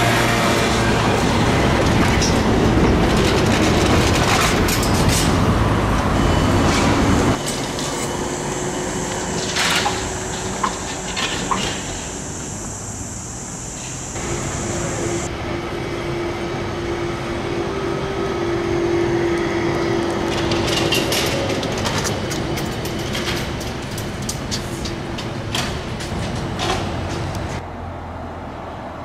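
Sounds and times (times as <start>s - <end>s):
street background: 0.0s - 29.0s
trolleybus passing: 0.0s - 29.0s
steady high whine: 6.0s - 21.7s
clicks and clatter over wires: 20.3s - 27.5s.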